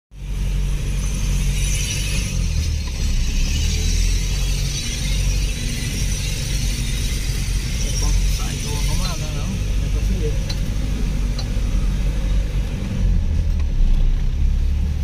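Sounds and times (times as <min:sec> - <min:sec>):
low engine drone: 0:00.1 - 0:15.0
tyres hissing on dirt: 0:00.2 - 0:13.1.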